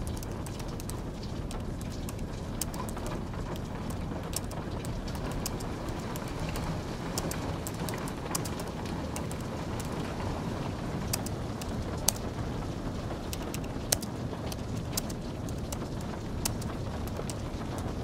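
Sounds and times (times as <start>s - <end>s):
steady rain: 0.0s - 18.0s
keyboard typing clicks: 13.3s - 14.1s.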